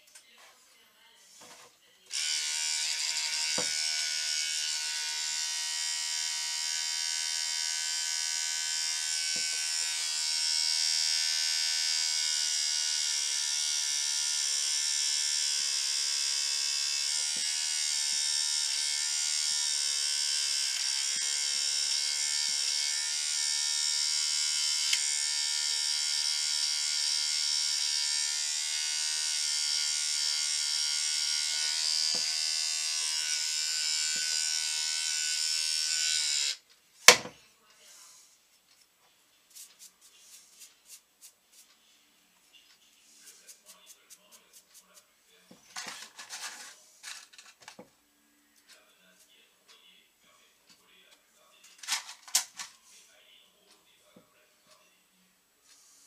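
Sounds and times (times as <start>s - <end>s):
electric hair trimmer buzzing: 2.1s - 37.3s.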